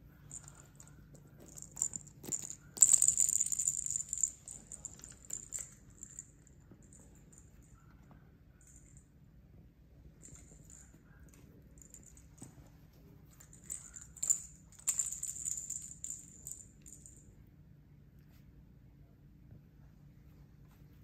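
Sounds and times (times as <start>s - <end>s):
ball rolling on hard floor: 0.3s - 6.3s
plastic toy ball rattling: 0.3s - 6.4s, 13.4s - 17.2s.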